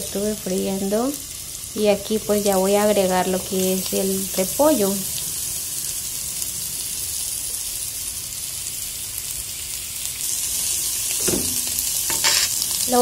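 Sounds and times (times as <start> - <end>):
cabbage sizzling in a pan: 0.0 - 13.0
wooden spoon knocking a pan: 11.2 - 12.5.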